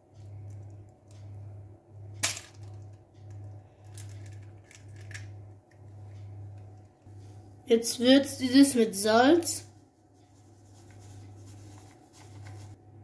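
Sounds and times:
low steady hum: 0.0 - 13.0
egg cracking: 2.5 - 5.9.

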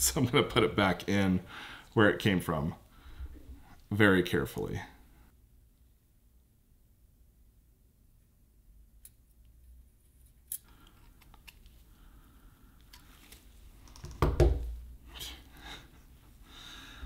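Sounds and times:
small metal parts clicking and scraping: 9.5 - 11.7.

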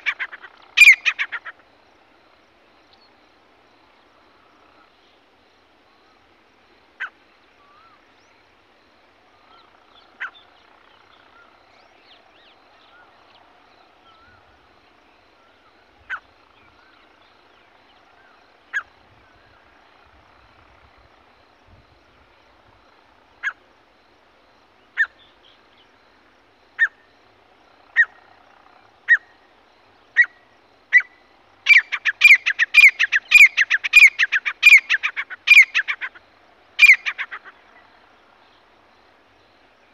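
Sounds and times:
francolin calling: 0.0 - 1.7, 26.7 - 27.1, 27.9 - 28.4, 29.0 - 38.7.

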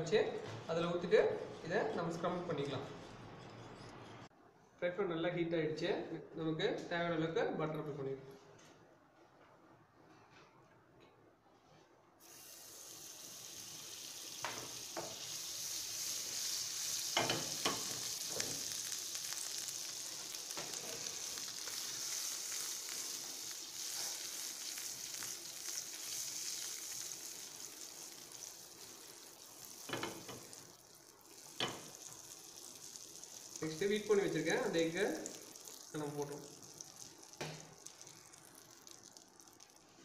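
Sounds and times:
butter sizzling in frying pan: 12.2 - 40.0.

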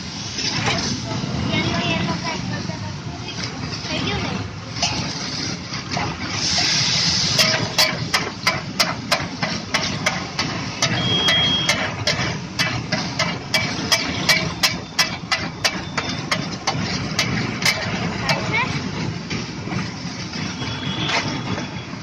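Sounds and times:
water sizzling on hot griddle: 0.0 - 22.0
metal spatula scraping griddle: 0.2 - 1.0, 3.7 - 18.8.

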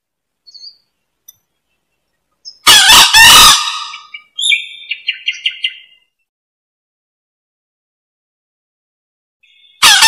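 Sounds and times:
rooster crowing: 9.8 - 10.0.

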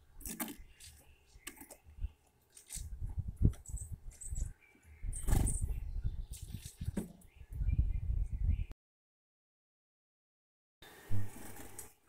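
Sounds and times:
animal pecking at seeds: 0.0 - 4.4.

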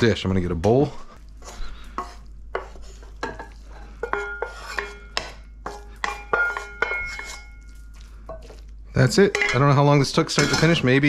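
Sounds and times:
wooden spoon knocking steel wok: 2.0 - 7.4, 8.3 - 11.0.

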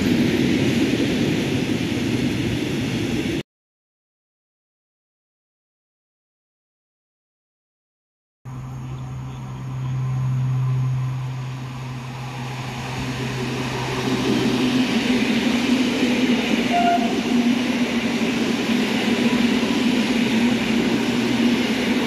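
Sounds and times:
electric train passing: 0.0 - 3.4, 8.5 - 22.0.

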